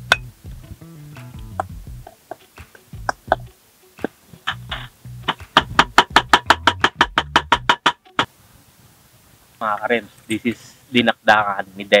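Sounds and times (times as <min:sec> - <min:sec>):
guitar music: 0:00.0 - 0:08.3
cleaver chopping on wooden board: 0:04.7 - 0:08.2.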